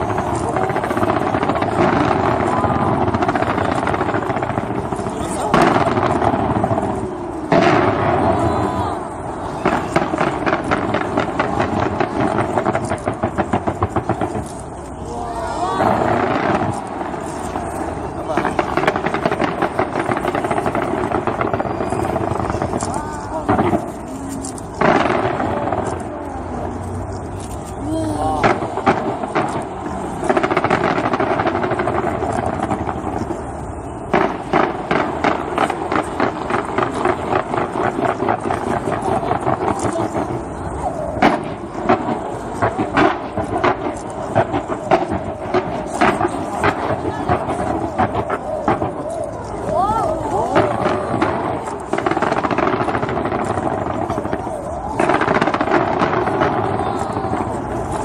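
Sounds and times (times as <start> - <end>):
fireworks banging rapidly: 0.0 - 58.0.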